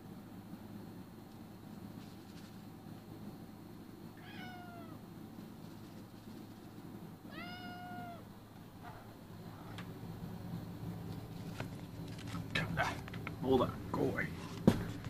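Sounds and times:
faint rustles: 0:01.6 - 0:03.1, 0:05.3 - 0:07.1
cat meowing: 0:04.2 - 0:05.0, 0:07.3 - 0:08.3.

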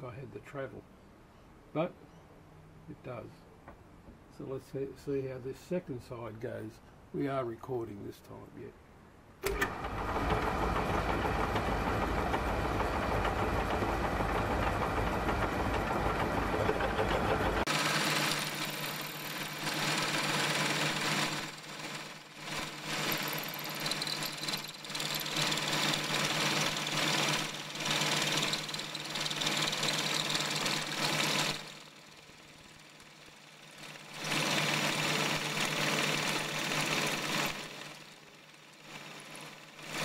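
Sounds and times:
lathe motor hum: 0:09.4 - 0:40.0
drill bit cutting metal: 0:22.5 - 0:31.6.

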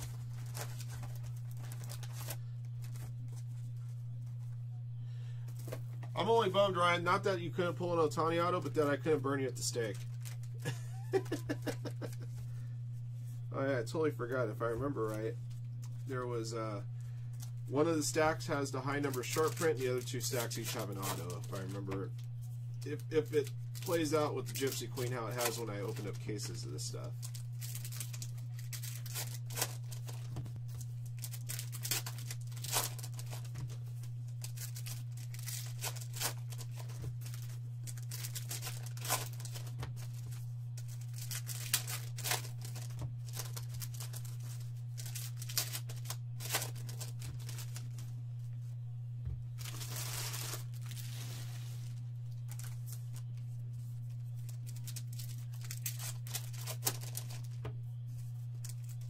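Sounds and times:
wrappers torn and crinkled: 0:00.0 - 0:04.4, 0:09.7 - 0:12.3, 0:17.4 - 0:48.1, 0:49.6 - 0:53.4, 0:54.0 - 0:57.6, 0:58.5 - 0:59.0
steady low hum: 0:00.0 - 0:59.0.

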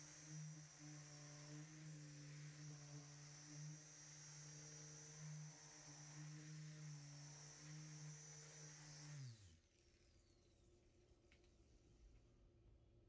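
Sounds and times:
electric polisher motor humming: 0:00.0 - 0:09.5.

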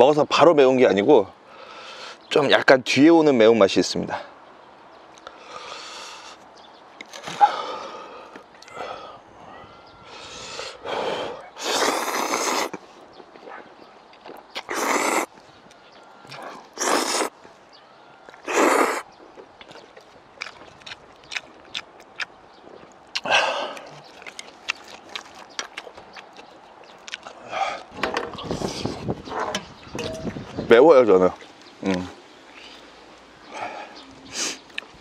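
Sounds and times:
wet chewing: 0:11.4 - 0:29.4, 0:31.3 - 0:35.0
person slurping noodles: 0:11.6 - 0:12.8, 0:14.6 - 0:15.3, 0:16.7 - 0:17.3, 0:18.4 - 0:19.0
lip-smacking clicks: 0:19.4 - 0:27.9.

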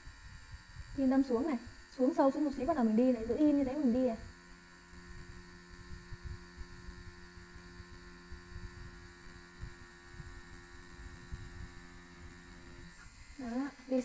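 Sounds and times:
tattoo machine humming: 0:00.0 - 0:14.0.

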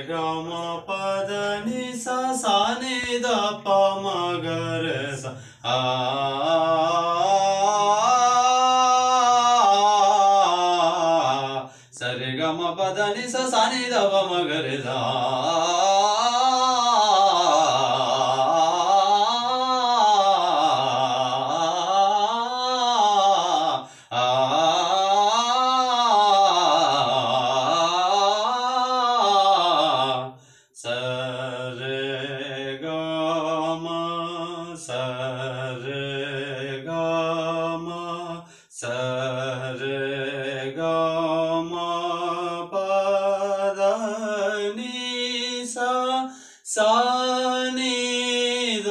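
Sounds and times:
man singing unaccompanied: 0:00.0 - 0:48.9
singer breathing in: 0:05.3 - 0:05.7, 0:11.6 - 0:12.0, 0:23.8 - 0:24.1, 0:30.4 - 0:30.8, 0:38.4 - 0:38.8, 0:46.2 - 0:46.7.

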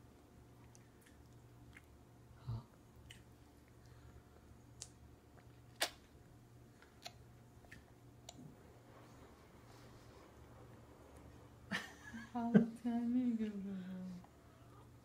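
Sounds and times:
baby mouth clicks and smacks: 0:04.8 - 0:06.1.

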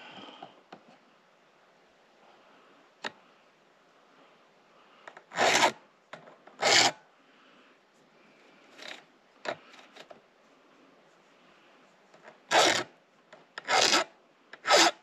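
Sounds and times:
file scraping chainsaw chain: 0:05.3 - 0:05.8, 0:06.6 - 0:07.0, 0:12.5 - 0:12.9, 0:13.6 - 0:15.0.

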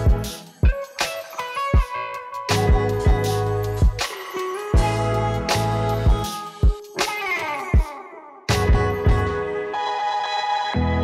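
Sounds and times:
deep kick drum: 0:02.6 - 0:04.0.

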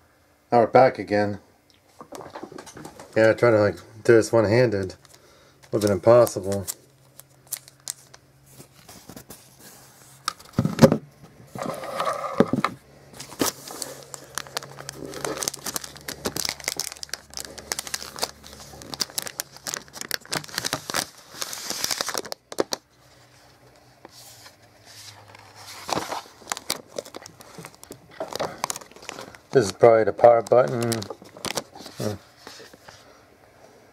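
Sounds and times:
plastic sleeve crinkling and tearing: 0:05.0 - 0:09.3, 0:13.2 - 0:22.9, 0:24.2 - 0:32.9.

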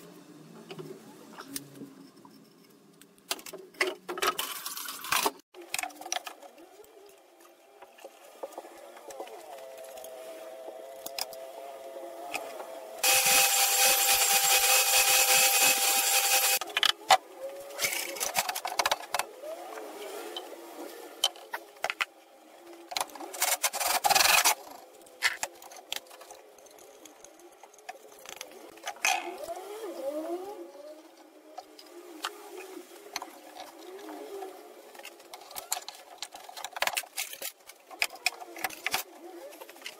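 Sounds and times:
table saw cutting wood: 0:13.0 - 0:16.6.

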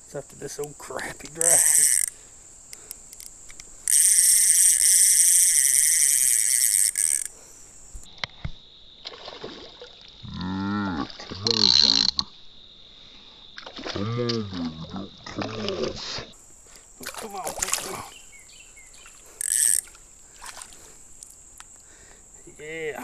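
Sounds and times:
fishing reel drag buzzing: 0:00.8 - 0:08.1, 0:18.9 - 0:21.4
fish splashing: 0:09.0 - 0:10.1, 0:17.0 - 0:18.2, 0:19.0 - 0:21.3
man's low voice: 0:14.0 - 0:16.2.

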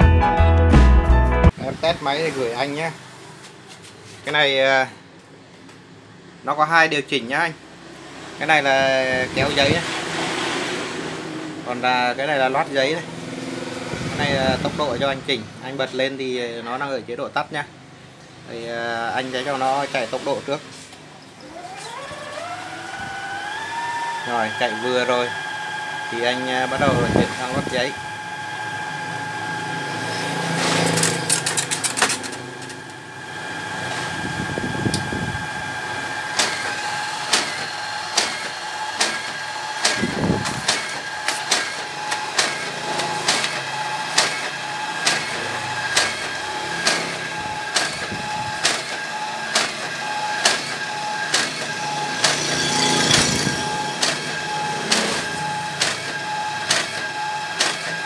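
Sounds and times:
motor whine: 0:21.3 - 0:31.6, 0:32.2 - 0:58.0
paper feed clicking: 0:36.1 - 0:58.0.

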